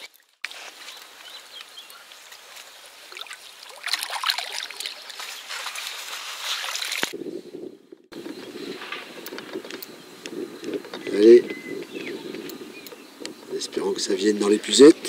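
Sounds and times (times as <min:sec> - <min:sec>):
water splashing and dripping: 0:02.3 - 0:07.2.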